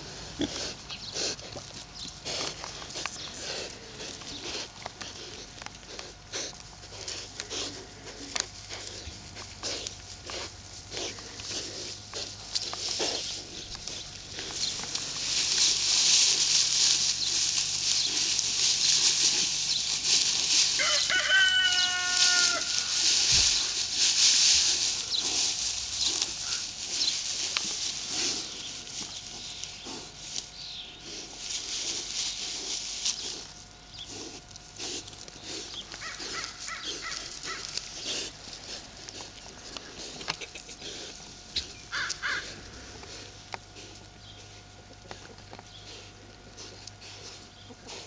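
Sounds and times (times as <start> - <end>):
piglets rustling in straw: 0.0 - 48.0
rooster crowing: 20.8 - 23.0.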